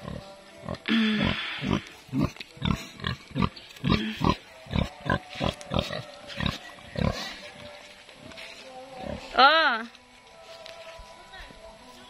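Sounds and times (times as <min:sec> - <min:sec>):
pig grunting: 0:00.0 - 0:07.4.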